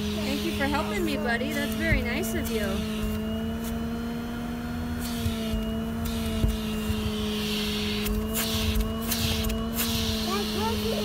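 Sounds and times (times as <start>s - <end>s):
vacuum cleaner running: 0.0s - 11.0s.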